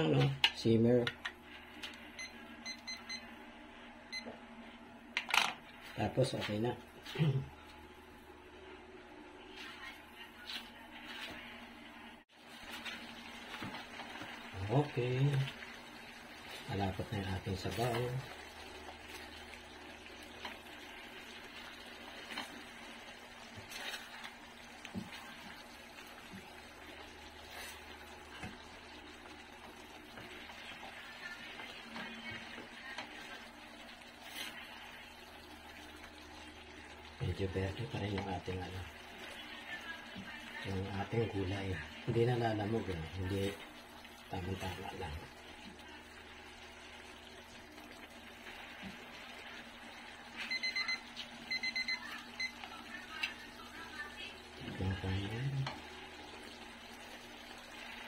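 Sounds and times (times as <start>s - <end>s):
electronic alarm beeping: 2.2s - 3.3s, 50.4s - 52.6s
sauce simmering in a pan: 12.3s - 58.0s.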